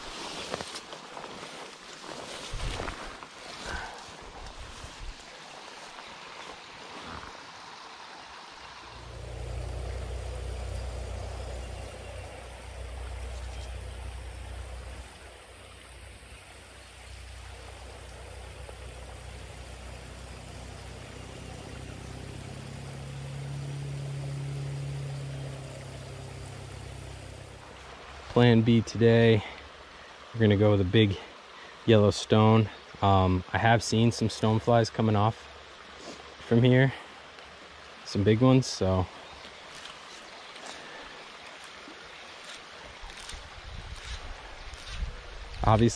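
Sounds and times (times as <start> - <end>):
creek running: 0.0 - 45.9
low rumble: 8.8 - 28.1.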